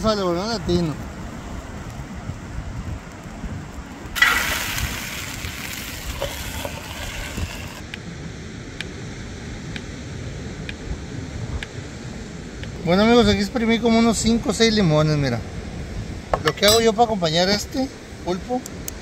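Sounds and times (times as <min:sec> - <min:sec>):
wind: 0:00.0 - 0:19.0
octopus sizzling in a skillet: 0:04.2 - 0:07.8
ocean surf: 0:04.2 - 0:08.0.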